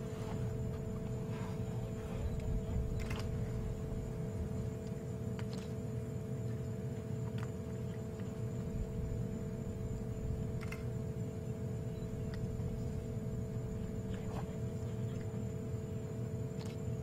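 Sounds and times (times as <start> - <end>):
low rumble: 0.0 - 4.8
steady hum: 0.0 - 17.0.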